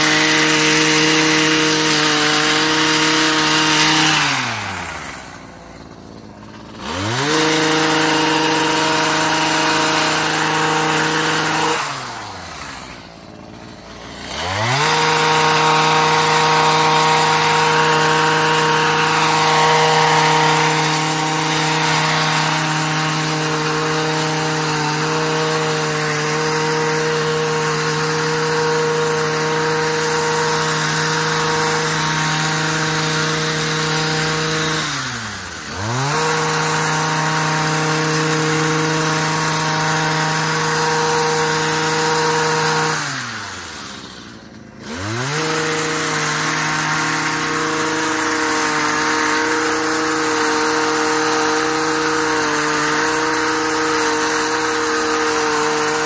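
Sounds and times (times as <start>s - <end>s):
hedge trimmer cutting hedge: 0.0s - 56.0s.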